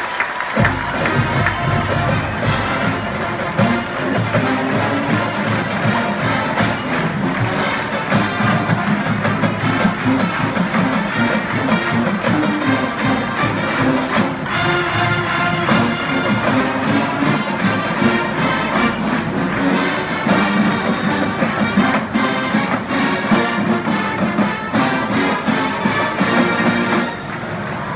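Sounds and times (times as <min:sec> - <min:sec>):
drumline hits: 0:00.0 - 0:27.9
marching band playing: 0:00.0 - 0:27.9.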